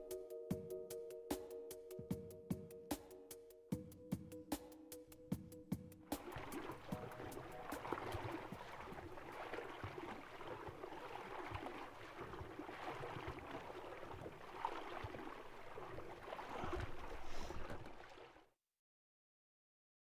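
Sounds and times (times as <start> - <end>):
river water rushing: 6.2 - 18.4.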